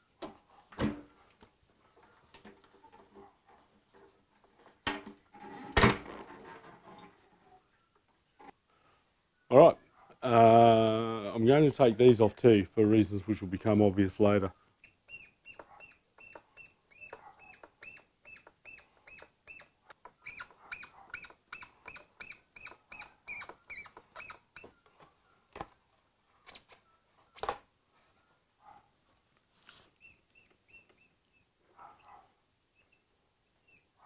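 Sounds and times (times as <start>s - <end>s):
hand tool squeaky chirps: 14.8s - 25.1s, 30.0s - 34.0s.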